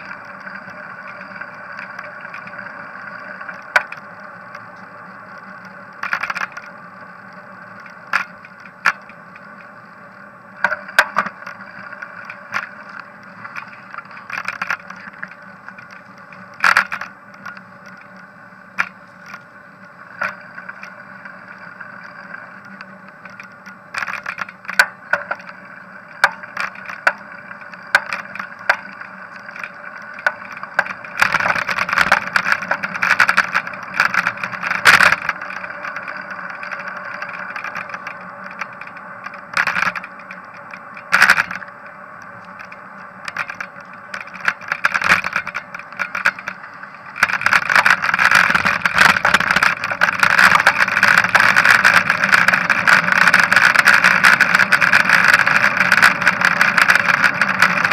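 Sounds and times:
bicycle running hum: 0:00.0 - 0:57.9
bike knocks and rattles: 0:10.6 - 0:18.0, 0:23.2 - 0:25.6.

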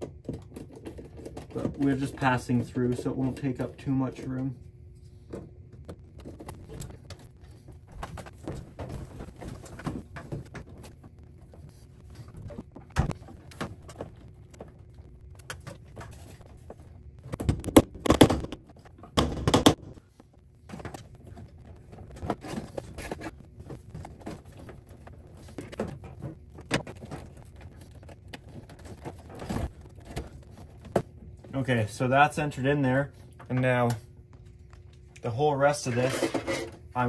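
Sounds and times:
cable rustling: 0:20.0 - 0:31.6.

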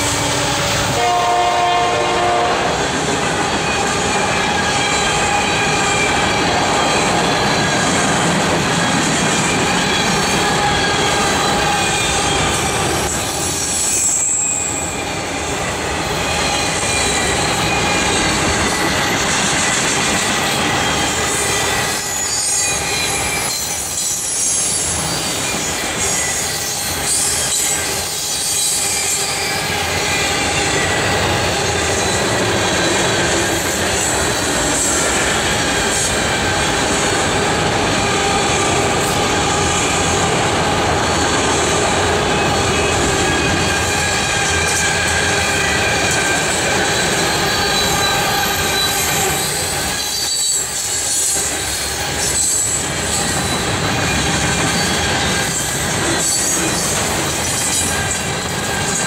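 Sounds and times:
train wheels squealing: 0:00.0 - 0:01.9, 0:02.7 - 0:59.0
freight train wheels rumbling: 0:00.0 - 0:59.0.

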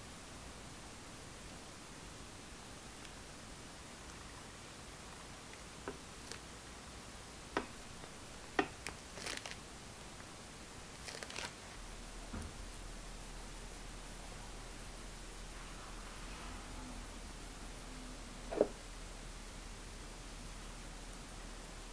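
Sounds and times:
faint steady hiss: 0:00.0 - 0:21.9
crinkling bursts: 0:06.2 - 0:06.5, 0:08.7 - 0:09.7, 0:10.8 - 0:11.8
piping bag clicks: 0:08.6 - 0:09.6.

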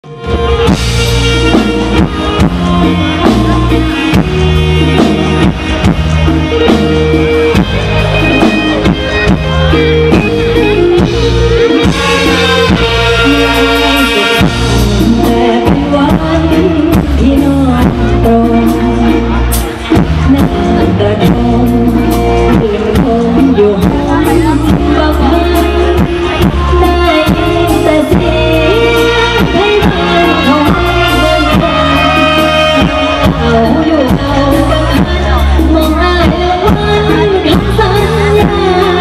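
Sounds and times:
drum kit steady beat: 0:00.0 - 0:39.0
melody: 0:00.0 - 0:39.0
repeating bass line: 0:00.0 - 0:39.0.

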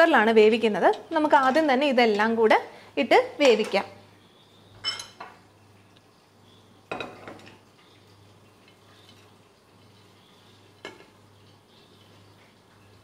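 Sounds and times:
glass plate clinking on metal cooker: 0:04.8 - 0:05.4
kitchenware knocks: 0:06.9 - 0:07.5.

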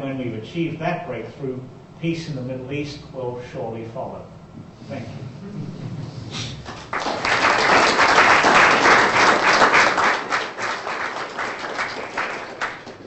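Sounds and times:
audience applauding: 0:06.7 - 0:13.0.

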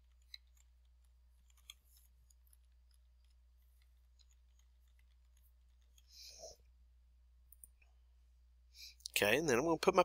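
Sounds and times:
keyboard typing: 0:00.0 - 0:06.4
low steady hum: 0:00.0 - 0:10.0.

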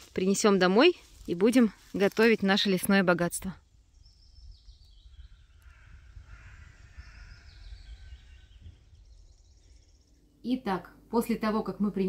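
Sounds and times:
songbird singing: 0:00.2 - 0:11.9
steady low rumble: 0:03.4 - 0:11.9.

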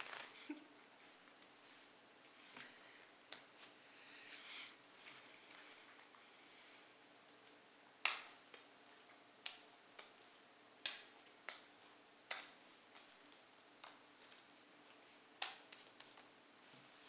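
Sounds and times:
playing cards slapping on stone: 0:08.0 - 0:08.7, 0:10.8 - 0:11.7, 0:12.3 - 0:14.5, 0:15.4 - 0:16.3.

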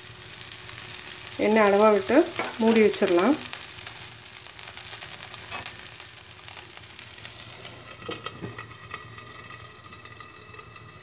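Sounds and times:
oil sizzling in pan: 0:00.0 - 0:11.0.

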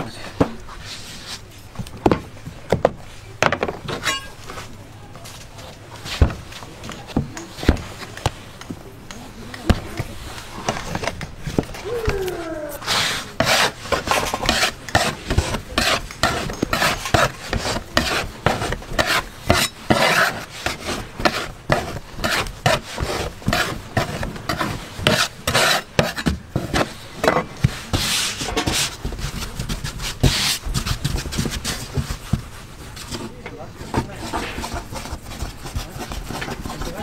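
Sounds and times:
rasping scraping strokes: 0:12.4 - 0:37.0.

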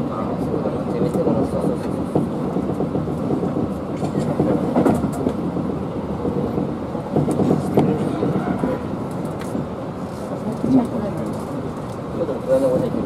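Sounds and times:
train rumbling and rattling: 0:00.0 - 0:13.0
wheels clacking over rail joints: 0:00.9 - 0:13.0.

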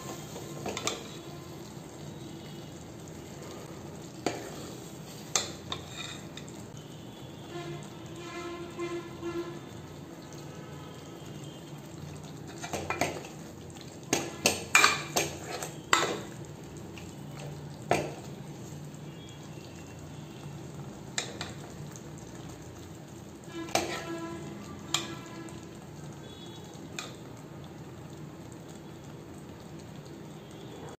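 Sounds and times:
metal ladle clinking on pot: 0:14.1 - 0:16.3.

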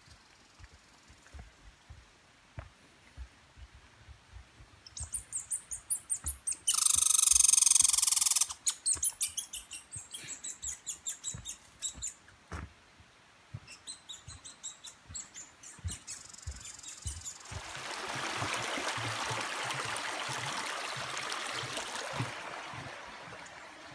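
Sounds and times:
footsteps on dirt trail: 0:00.1 - 0:06.4, 0:11.2 - 0:12.8, 0:13.5 - 0:14.4, 0:15.0 - 0:23.5
animal making sharp high chirps: 0:05.0 - 0:12.2.

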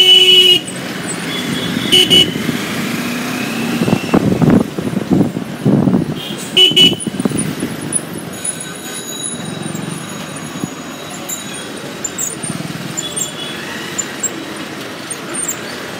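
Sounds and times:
motorbike engine and road rumble: 0:00.0 - 0:15.9.

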